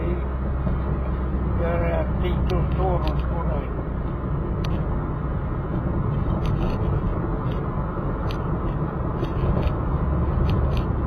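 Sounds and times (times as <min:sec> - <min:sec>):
vehicle engine and road noise: 0:00.0 - 0:11.0
light clicks or rattles: 0:10.4 - 0:11.0.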